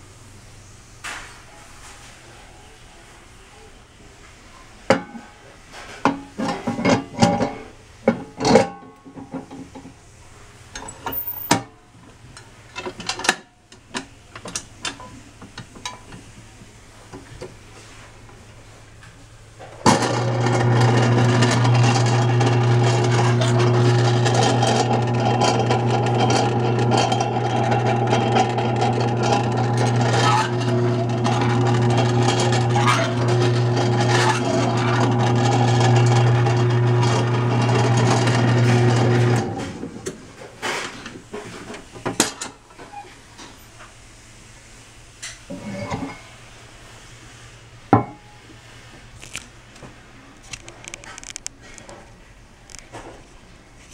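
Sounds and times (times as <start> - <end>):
electric motor humming: 19.9 - 39.6.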